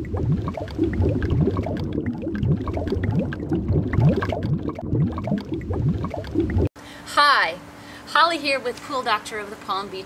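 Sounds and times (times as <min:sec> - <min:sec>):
low rumble: 0:00.0 - 0:06.7
underwater bubbling: 0:00.0 - 0:06.7.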